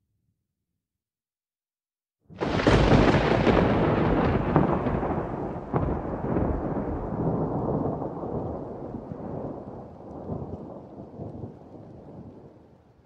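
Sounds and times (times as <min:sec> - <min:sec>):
sharp thunder cracks: 0:02.3 - 0:12.5
thunder crackling and rumbling: 0:02.3 - 0:12.8.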